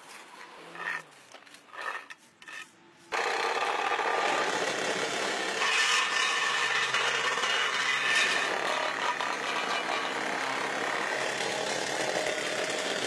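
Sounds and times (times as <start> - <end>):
short scrapes: 0.0 - 3.1
tool rasping: 5.4 - 12.2.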